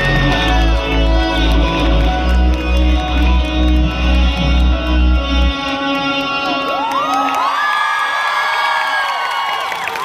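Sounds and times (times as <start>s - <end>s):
crowd whooping and cheering: 0.0s - 4.2s, 6.4s - 10.0s
live band playing: 0.0s - 7.0s.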